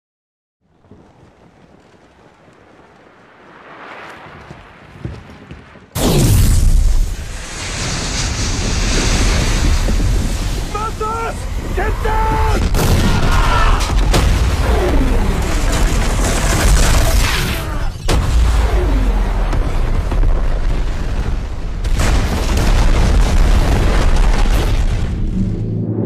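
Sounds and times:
falling whooshes: 3.0s - 11.8s
explosion roar: 5.8s - 26.0s
deep rumbling boom: 6.0s - 17.1s, 18.0s - 26.0s.

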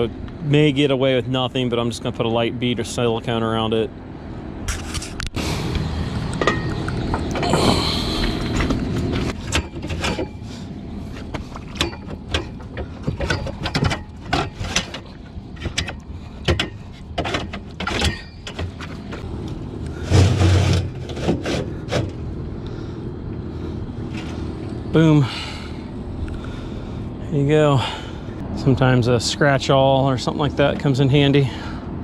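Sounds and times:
low rumble: 3.8s - 17.2s
metal clanking and scraping: 4.6s - 5.5s, 6.3s - 19.3s, 19.9s - 22.3s, 24.0s - 24.8s.

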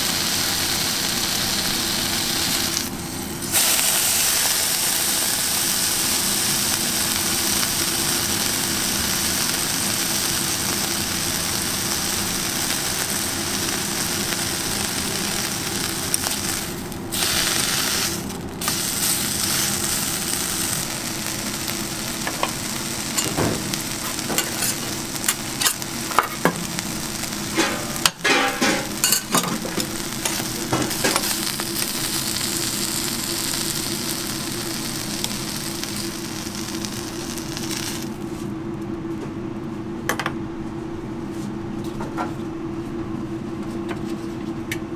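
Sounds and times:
bacon sizzling on a griddle: 0.0s - 38.2s
metal tongs scraping griddle: 24.1s - 26.5s, 27.5s - 31.4s.

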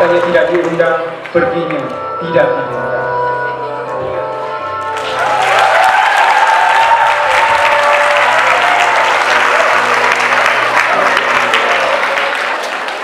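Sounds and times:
background music: 0.0s - 13.0s
audience applauding: 5.0s - 13.0s.

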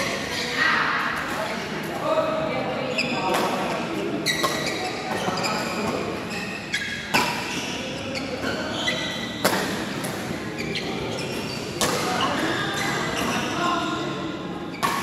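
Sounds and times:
shoe squeaks: 0.0s - 0.8s, 2.8s - 3.4s, 4.2s - 14.0s
rackets striking shuttlecock: 9.4s - 10.3s, 11.8s - 12.5s, 14.8s - 15.0s.

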